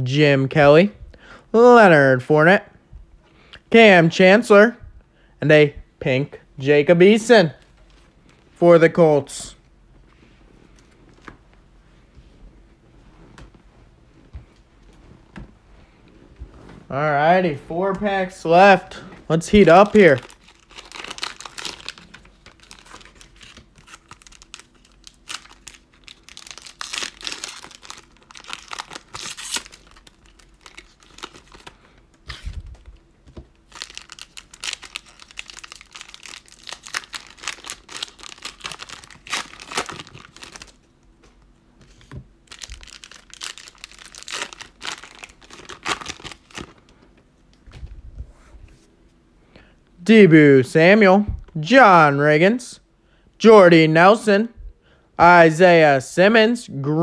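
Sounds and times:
foil wrapper crinkling and tearing: 19.6 - 32.8, 33.6 - 40.8, 42.4 - 46.9.

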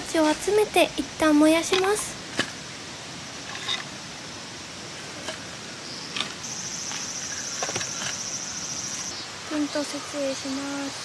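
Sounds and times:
high-pitched insect drone: 5.9 - 11.0.

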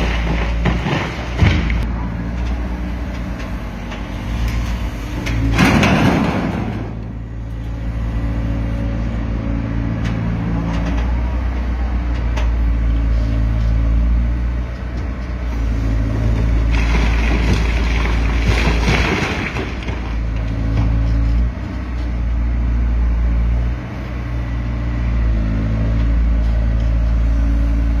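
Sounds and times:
masonry crashing and crumbling: 0.0 - 1.9, 5.3 - 7.3, 16.3 - 20.9
excavator diesel engine running: 0.0 - 28.0.

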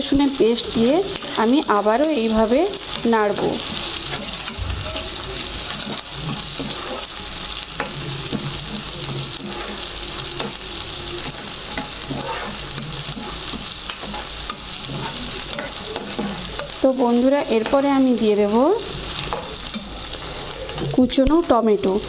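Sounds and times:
onions sizzling in oil: 0.0 - 22.0
spatula scraping and tapping pan: 2.0 - 7.1, 7.8 - 10.6, 11.2 - 16.8, 19.1 - 21.4.

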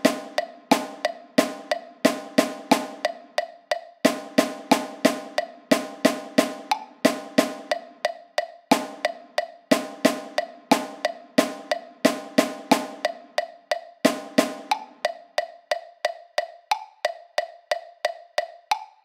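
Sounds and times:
drum playing rhythm: 0.0 - 19.0
metronome clicking: 0.0 - 19.0.

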